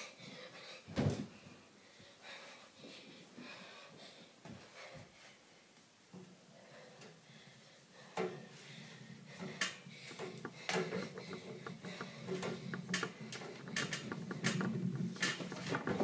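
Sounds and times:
steady low hum: 6.5 - 16.0
knocks and bumps: 9.2 - 16.0.

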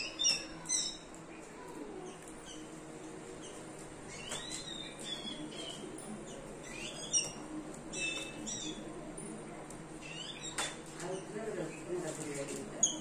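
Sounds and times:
sparrows chirping: 0.0 - 13.0.

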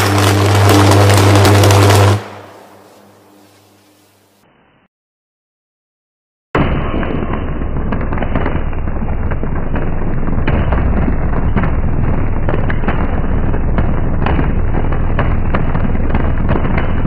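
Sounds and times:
electrical arc crackling: 0.0 - 4.4
low electrical hum: 0.0 - 4.8.

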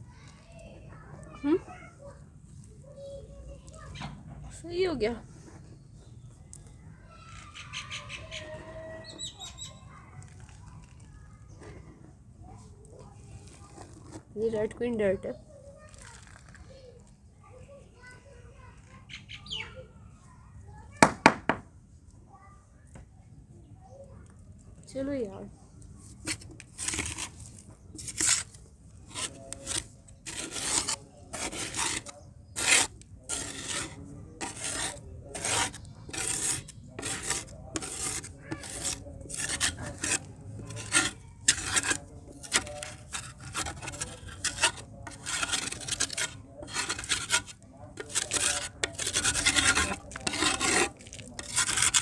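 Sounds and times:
scraper rasping clay in pot: 26.0 - 52.0.

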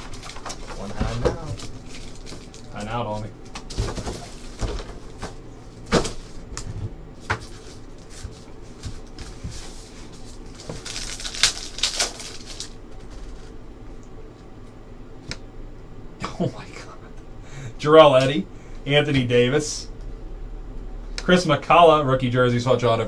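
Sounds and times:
plastic wrappers tearing and crinkling: 0.0 - 4.6, 7.4 - 13.5.

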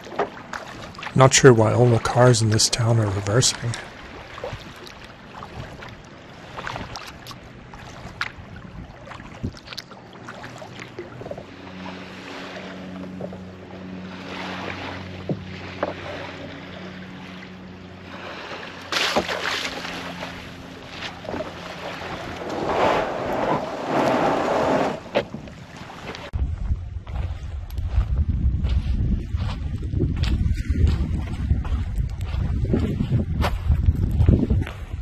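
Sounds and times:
water lapping and splashing: 0.0 - 35.0
low hum: 9.9 - 34.4
kayak scraping over gravel: 18.9 - 26.3.

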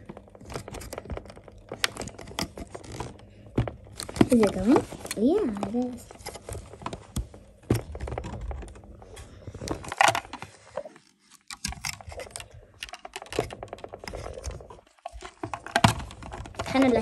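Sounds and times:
small clicks and crackles: 0.0 - 17.0.

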